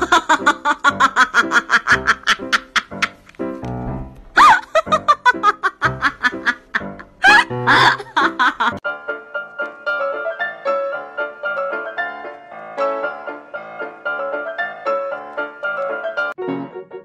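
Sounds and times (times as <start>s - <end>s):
gentle piano music: 0.0s - 17.0s.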